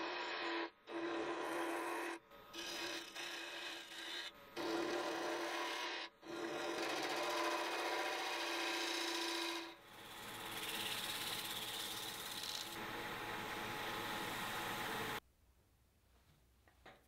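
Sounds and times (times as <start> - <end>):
gouge scraping wood on lathe: 0.1 - 12.8.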